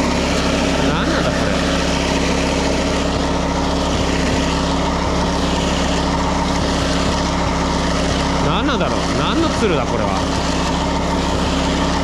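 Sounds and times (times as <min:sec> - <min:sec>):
small petrol engine running: 0:00.0 - 0:12.0.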